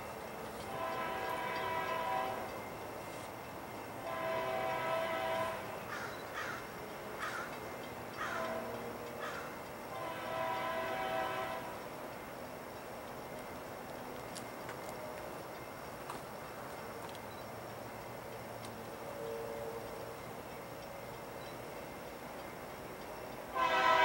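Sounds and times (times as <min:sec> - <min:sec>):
faint locomotive air horn: 0:00.6 - 0:03.3, 0:04.0 - 0:05.8, 0:08.2 - 0:09.0, 0:09.9 - 0:11.9, 0:19.0 - 0:20.1, 0:23.5 - 0:24.0
crow cawing: 0:05.9 - 0:07.5, 0:08.2 - 0:08.5, 0:09.2 - 0:09.6.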